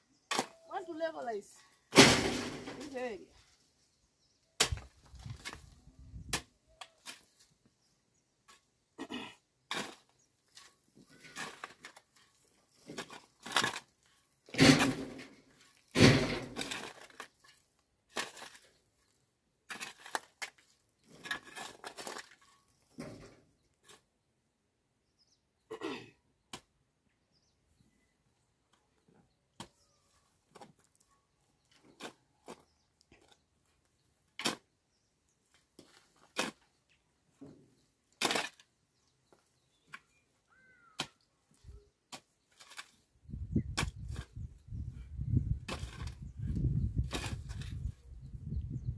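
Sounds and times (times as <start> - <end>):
metal blade striking stony soil: 14.5 - 17.2, 38.2 - 38.7.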